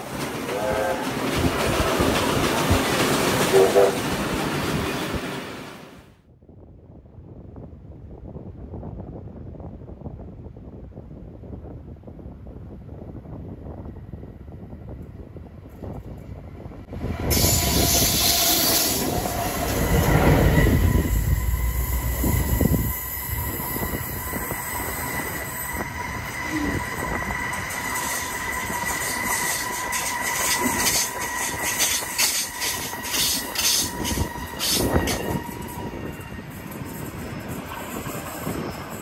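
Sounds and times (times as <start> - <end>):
diesel locomotives rumbling past: 0.0 - 5.7, 16.2 - 39.0
high-pitched wheel squeal: 17.2 - 37.6.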